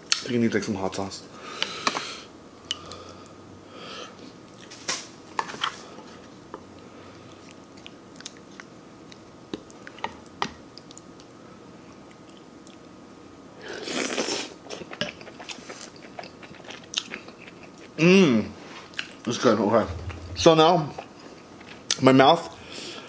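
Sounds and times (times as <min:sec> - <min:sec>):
mouth clicks and chewing: 0:14.8 - 0:17.9
rush of noise: 0:19.7 - 0:21.0.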